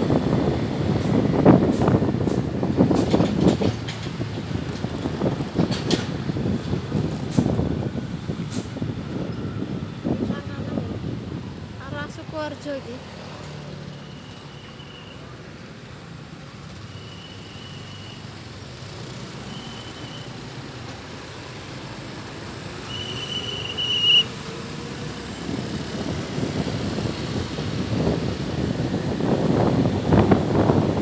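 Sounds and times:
wind buffeting microphone: 0:00.0 - 0:12.5, 0:24.6 - 0:31.0
vehicle rumbling along road: 0:00.0 - 0:31.0.

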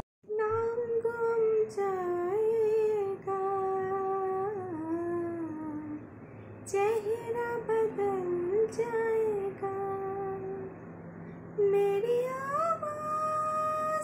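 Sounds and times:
woman singing slow melody: 0:00.3 - 0:10.8, 0:11.6 - 0:14.0.

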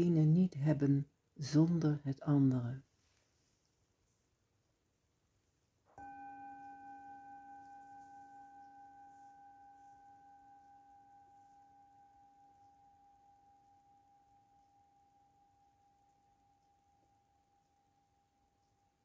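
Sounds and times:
singing bowl ringing: 0:05.9 - 0:19.0.

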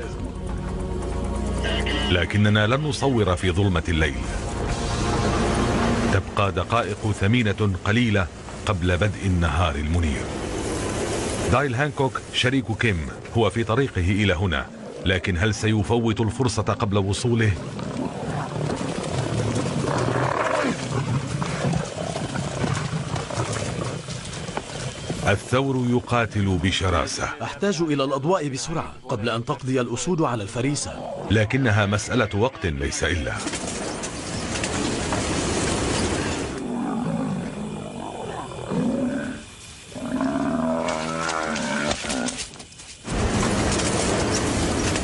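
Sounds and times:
lions growling: 0:17.5 - 0:25.2, 0:33.4 - 0:42.4.

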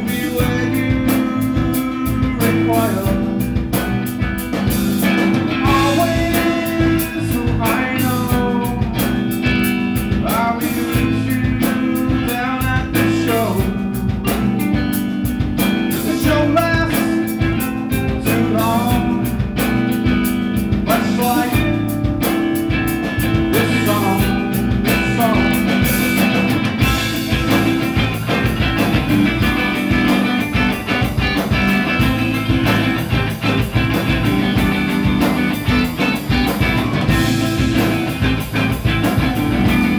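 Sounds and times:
man singing into microphone: 0:00.0 - 0:03.5, 0:05.6 - 0:09.0, 0:10.2 - 0:14.0, 0:16.0 - 0:19.4, 0:20.9 - 0:21.8, 0:23.5 - 0:25.8
rock band playing: 0:00.0 - 0:39.9.

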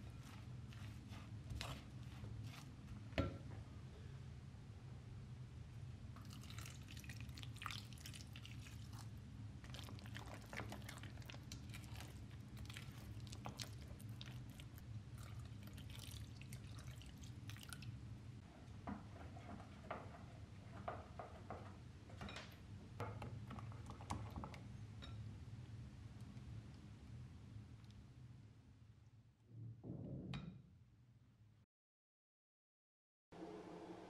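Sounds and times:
spoon mixing batter in glass bowl: 0:00.0 - 0:03.0, 0:06.3 - 0:17.1
water pouring into bowl: 0:06.2 - 0:09.1, 0:15.2 - 0:17.9.

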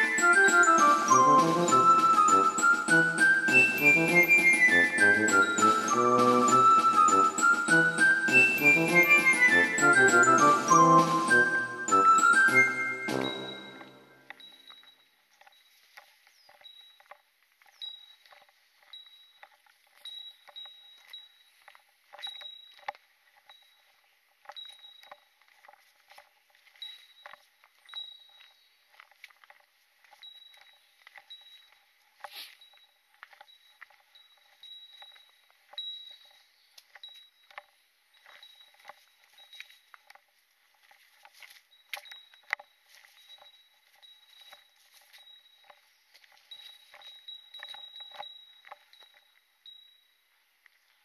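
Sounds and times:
footsteps on dirt trail: 0:00.0 - 0:14.9, 0:24.6 - 0:49.2
faint high ringing note: 0:12.7 - 0:14.3.

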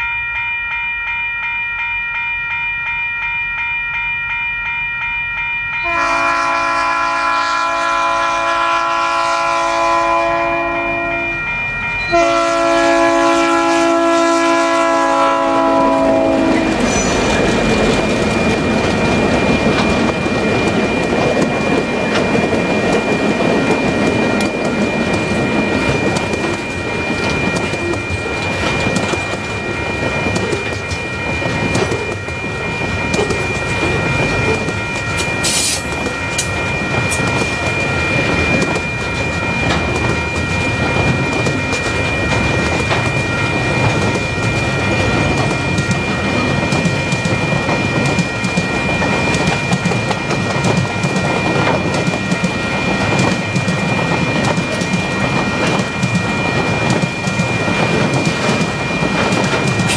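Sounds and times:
train rolling past: 0:05.4 - 0:59.9
locomotive horn: 0:05.8 - 0:11.4, 0:12.1 - 0:17.3
faint high ringing tone: 0:10.2 - 0:13.0.

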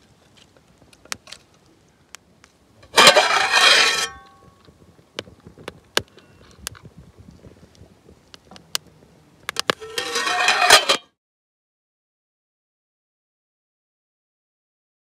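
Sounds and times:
pan lid scraping and clattering: 0:02.9 - 0:04.3, 0:09.8 - 0:11.0.

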